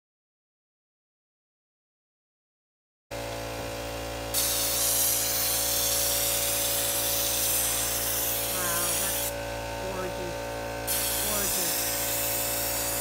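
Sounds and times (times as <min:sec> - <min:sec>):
steady hum: 0:03.2 - 0:13.0
spray gun hissing: 0:04.3 - 0:09.4, 0:10.8 - 0:13.0.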